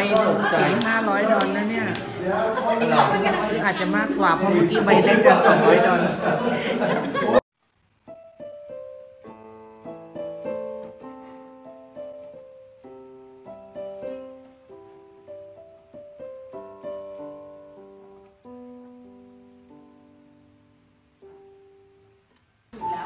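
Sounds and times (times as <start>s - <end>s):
piano music: 0.0s - 7.4s, 8.0s - 22.2s, 22.8s - 23.0s
voice: 0.0s - 7.4s.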